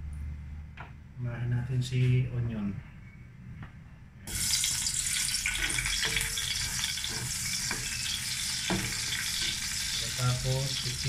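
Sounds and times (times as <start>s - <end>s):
onion sizzling in hot oil: 4.3s - 11.0s
utensil scraping and knocking wok: 5.0s - 11.0s.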